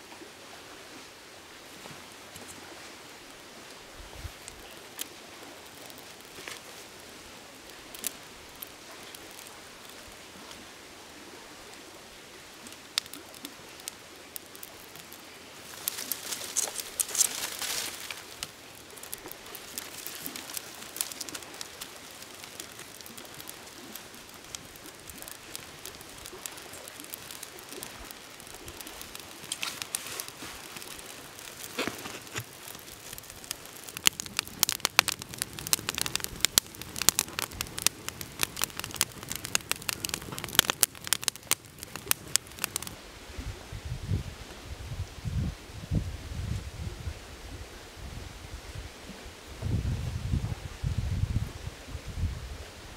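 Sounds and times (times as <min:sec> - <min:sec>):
campfire crackling and popping: 0:02.0 - 0:43.0.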